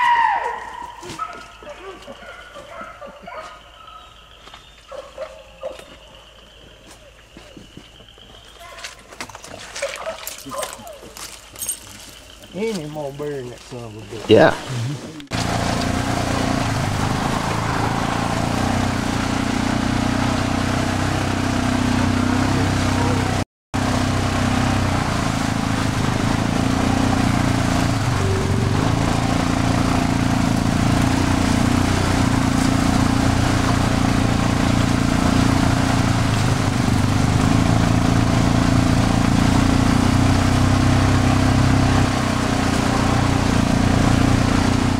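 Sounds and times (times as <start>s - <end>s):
vehicle engine droning: 10.2s - 44.9s.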